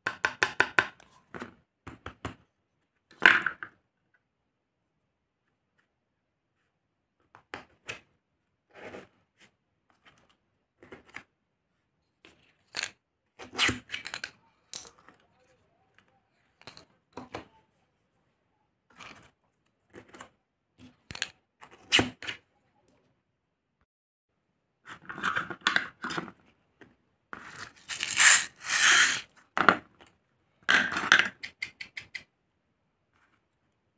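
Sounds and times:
plastic parts clicking and scraping: 27.4 - 29.2.

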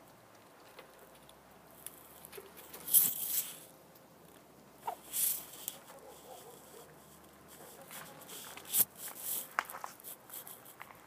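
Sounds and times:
hens scratching in dirt and straw: 1.9 - 3.7, 4.8 - 11.0.

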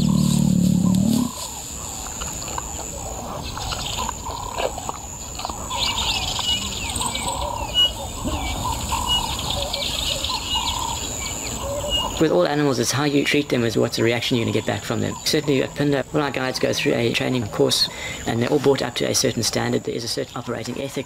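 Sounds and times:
birds whistling calls: 5.6 - 12.2.

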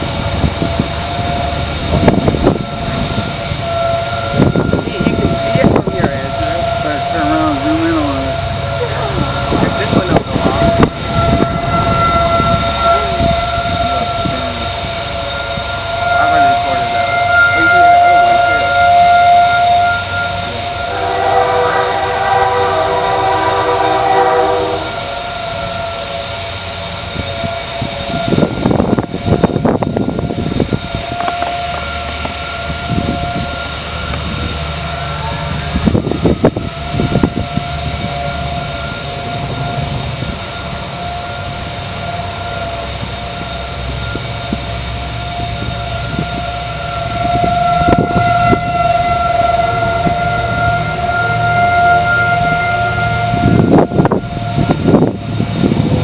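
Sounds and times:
wind gusts on microphone: 0.0 - 25.8, 26.6 - 41.7, 42.5 - 56.0
distant warning siren: 0.0 - 56.0
horn chord: 4.4 - 25.1.

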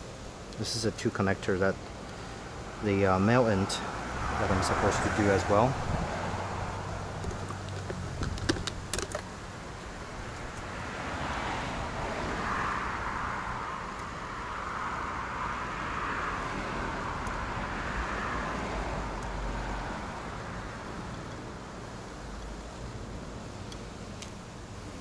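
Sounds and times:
vehicle passing by: 2.8 - 8.9, 10.6 - 20.9.

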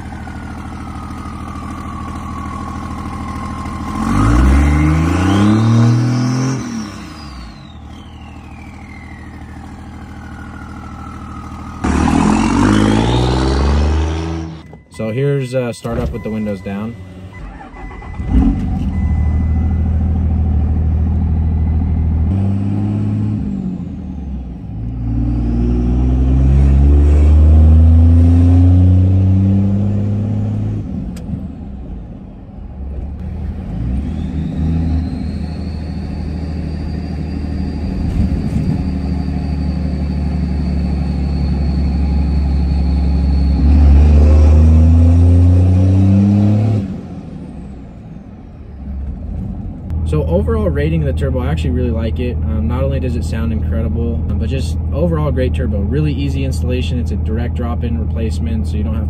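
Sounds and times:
diesel engine idling and revving: 0.0 - 59.0
turbo whistle: 1.8 - 15.0, 33.9 - 44.0.

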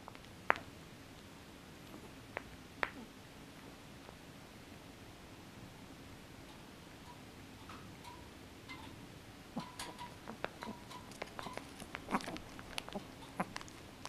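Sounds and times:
small dog teeth clicking: 9.6 - 14.0.

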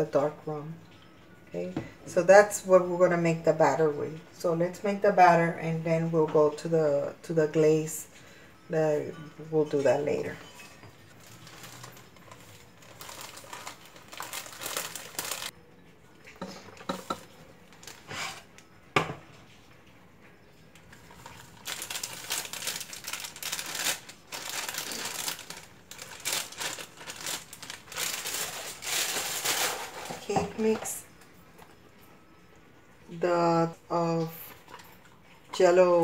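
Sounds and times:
plastic bag crinkling: 11.0 - 15.5, 17.0 - 18.5, 20.8 - 31.0.

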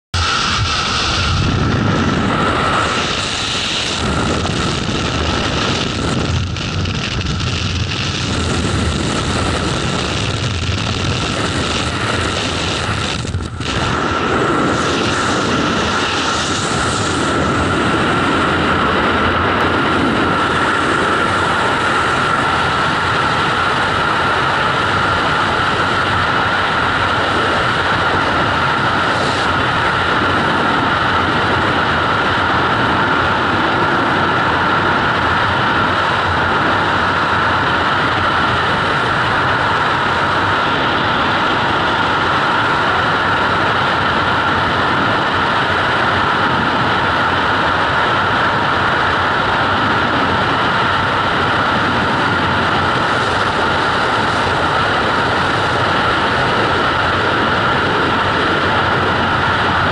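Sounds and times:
wind rushing past: 0.2 - 59.9.

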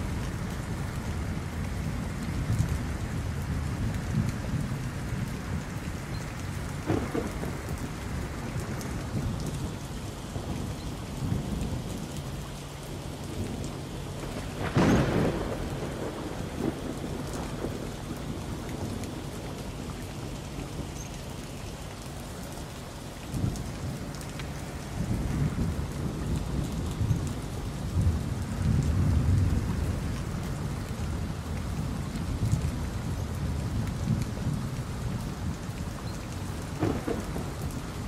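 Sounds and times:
steady rain: 0.0 - 38.0
low rolling thunder: 6.6 - 21.0, 23.2 - 38.0
sharp loud thunderclap: 6.8 - 7.8, 14.2 - 18.2, 36.7 - 38.0.

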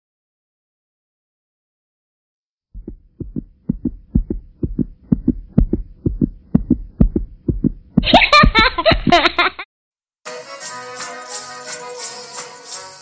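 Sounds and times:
heartbeat thumps: 2.8 - 9.4
music with jingling percussion: 10.3 - 13.0.

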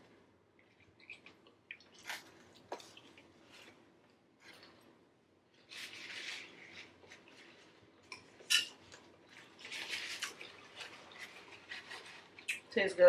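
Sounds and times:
forks scraping on plates: 8.4 - 8.8.

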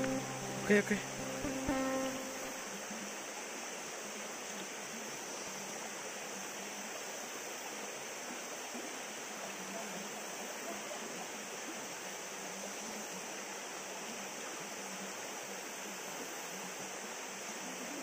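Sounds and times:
river water rushing: 0.0 - 5.0.

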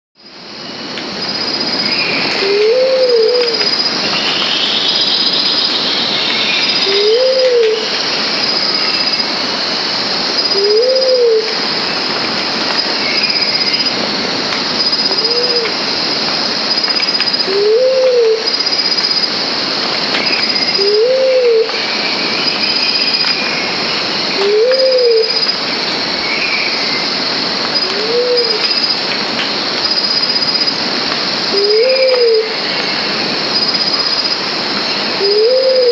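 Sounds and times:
steady high hiss: 0.2 - 35.9
pigeon cooing: 2.4 - 3.6, 6.8 - 7.9, 10.5 - 11.5, 15.1 - 15.7, 17.5 - 18.4, 20.8 - 21.7, 24.4 - 25.4, 27.9 - 28.6, 31.6 - 32.5, 35.2 - 35.9.

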